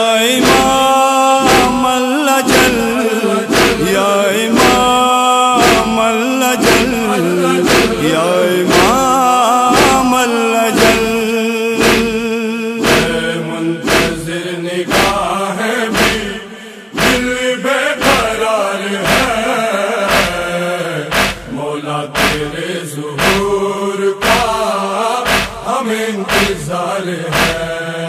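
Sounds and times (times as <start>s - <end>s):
men chanting: 0.0s - 28.0s
chest-beating rhythm: 0.4s - 5.0s, 5.6s - 10.1s, 10.8s - 11.2s, 11.8s - 14.3s, 14.9s - 15.3s, 15.9s - 16.3s, 17.0s - 17.3s, 18.0s - 18.4s, 19.0s - 19.5s, 20.1s - 20.4s, 21.1s - 21.6s, 22.2s - 22.6s, 23.2s - 23.6s, 24.2s - 25.7s, 26.3s - 26.6s, 27.3s - 27.6s.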